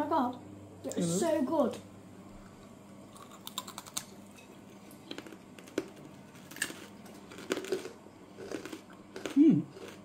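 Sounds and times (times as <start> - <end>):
sweets crunching as chewed: 3.1 - 10.0.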